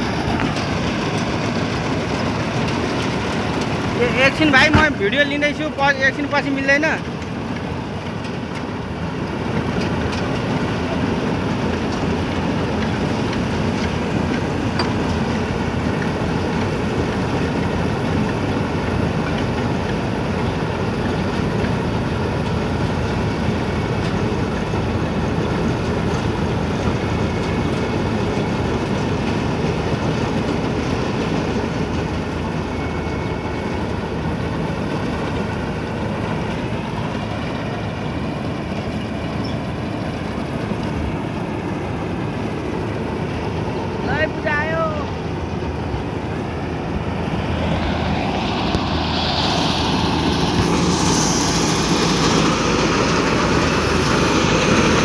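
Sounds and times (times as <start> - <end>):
combine harvester drone: 0.0 - 55.0.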